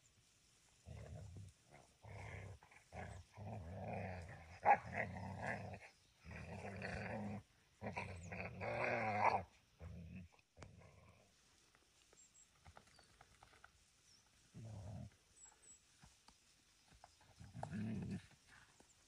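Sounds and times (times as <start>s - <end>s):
dogs growling: 0.9s - 11.3s, 17.4s - 18.7s.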